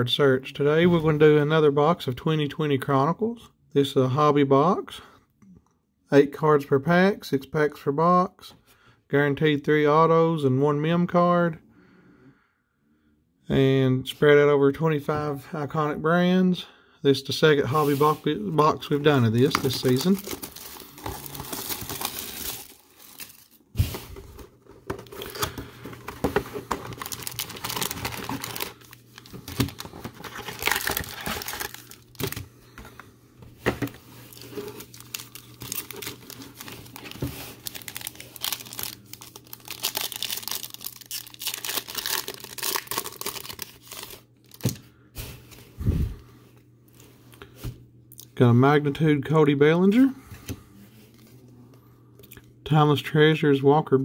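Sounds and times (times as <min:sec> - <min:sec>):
plastic wrap crinkling and tearing: 0:19.3 - 0:23.9, 0:25.0 - 0:32.4, 0:33.9 - 0:44.8.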